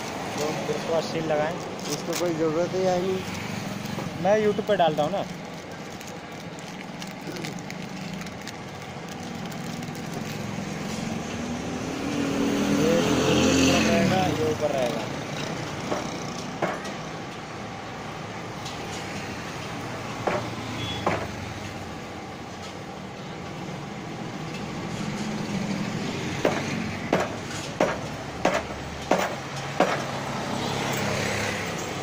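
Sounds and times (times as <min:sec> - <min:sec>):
street traffic noise: 0:00.0 - 0:32.0.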